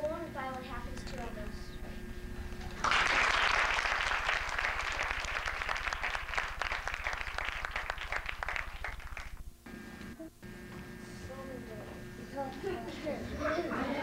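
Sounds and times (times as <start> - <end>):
audience applauding: 2.7 - 9.4.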